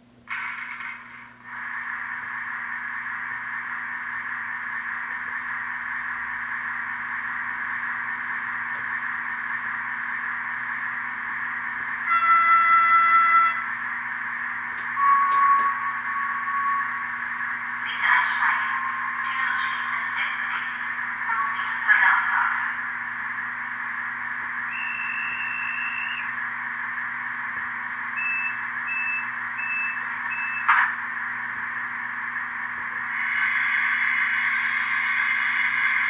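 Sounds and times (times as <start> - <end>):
train horn blast: 12.1 - 13.6.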